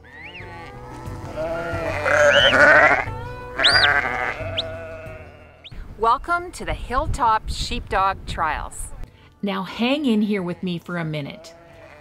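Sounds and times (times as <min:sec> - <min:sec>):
flock of sheep bleating: 0:00.0 - 0:05.6, 0:11.3 - 0:12.0.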